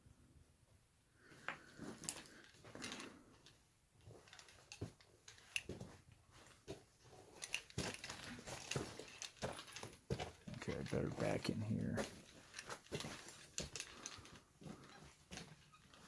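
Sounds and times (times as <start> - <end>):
footsteps crunching on loose rock: 7.7 - 14.0.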